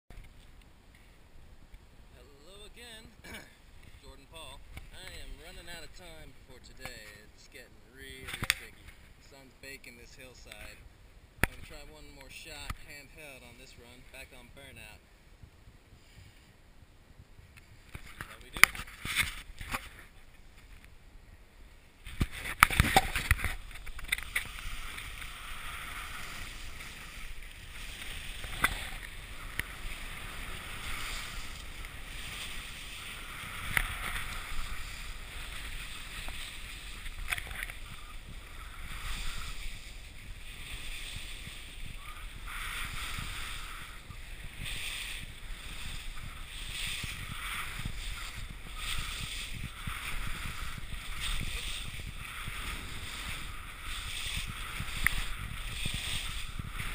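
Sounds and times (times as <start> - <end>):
skis swishing over snow: 17.7 - 20.7, 22.0 - 56.9.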